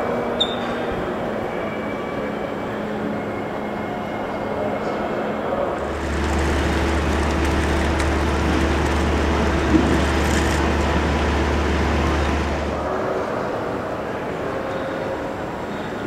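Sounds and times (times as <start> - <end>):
low vehicle rumble: 5.8 - 12.9
wash of noise: 5.8 - 13.0.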